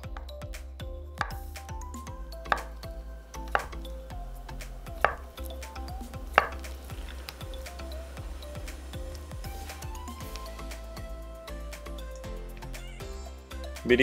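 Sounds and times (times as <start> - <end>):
soft background music: 0.0 - 14.0
knife knocking on cutting board: 5.0 - 5.3.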